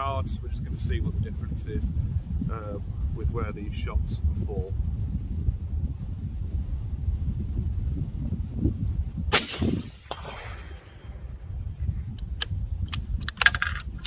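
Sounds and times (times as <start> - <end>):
suppressed rifle shot: 9.3 - 11.4
rifle bolt clicks: 12.1 - 14.0.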